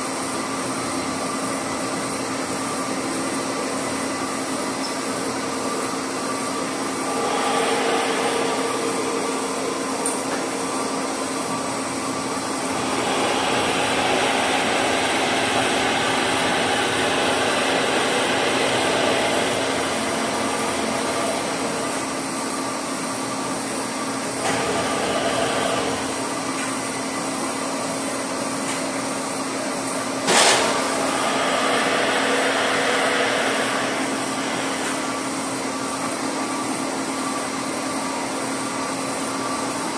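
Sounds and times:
boring mill humming: 0:00.0 - 0:28.2, 0:29.4 - 0:38.6
drill bit drilling: 0:12.7 - 0:21.8.

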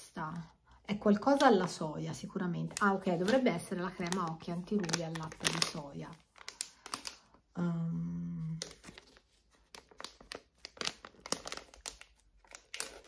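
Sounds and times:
plastic packaging crinkling: 0:02.6 - 0:07.4, 0:08.5 - 0:13.0
woman humming: 0:07.6 - 0:08.6.

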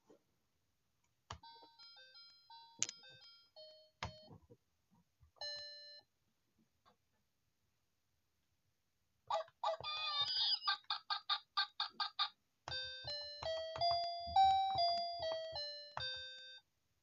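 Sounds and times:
toy piano beeping tunes: 0:01.4 - 0:04.4, 0:05.4 - 0:06.0, 0:12.7 - 0:16.6.

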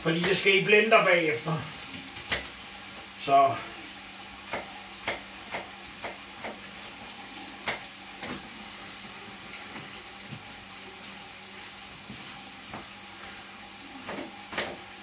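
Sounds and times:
vegetables sizzling in a pan: 0:00.0 - 0:15.0
knife chopping on cutting board: 0:04.5 - 0:06.6, 0:07.6 - 0:08.4.

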